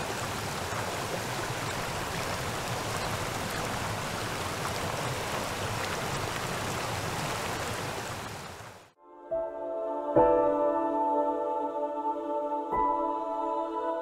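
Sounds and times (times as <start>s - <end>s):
torrent of water rushing: 0.0s - 9.0s.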